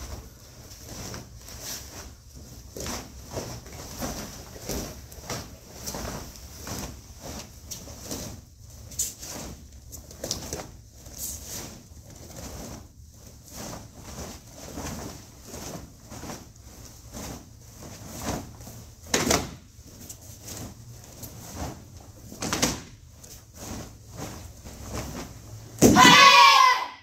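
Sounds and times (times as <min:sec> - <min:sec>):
bare feet landing on a mat: 0:19.1 - 0:19.7, 0:24.5 - 0:26.5.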